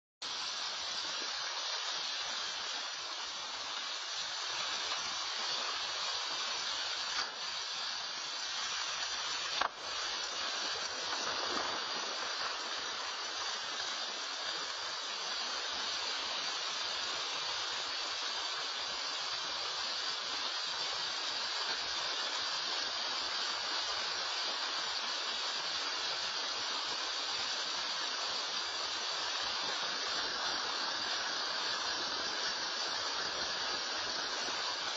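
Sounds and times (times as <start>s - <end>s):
mudslide and rain rushing: 0.2s - 34.9s.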